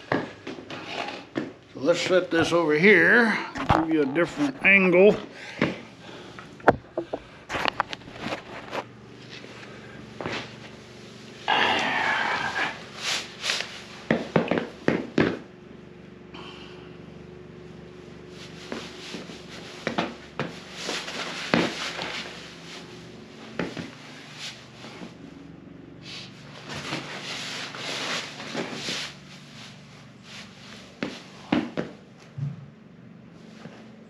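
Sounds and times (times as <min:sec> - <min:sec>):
fabric rubbing: 0:26.6 - 0:31.3.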